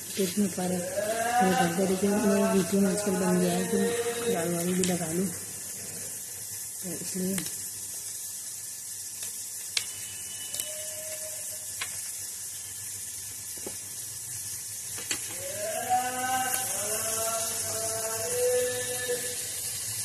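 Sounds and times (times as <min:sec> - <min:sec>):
steady hiss: 0:00.0 - 0:20.0
person speaking: 0:00.1 - 0:05.4.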